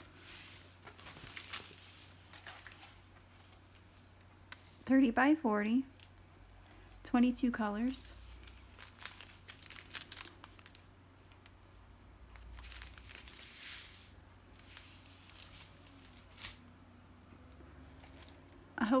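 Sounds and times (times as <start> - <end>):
plastic packets crinkling: 0.0 - 4.4, 7.7 - 11.6, 12.2 - 16.7, 17.8 - 18.7.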